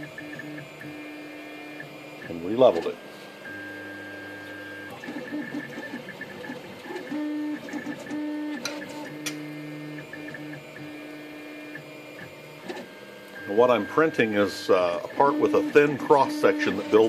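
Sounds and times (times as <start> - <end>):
printer stepper motors whining: 0.0 - 17.0.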